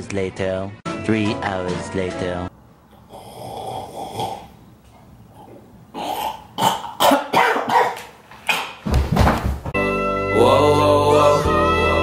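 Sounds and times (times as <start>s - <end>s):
man coughing harshly: 6.0s - 8.0s.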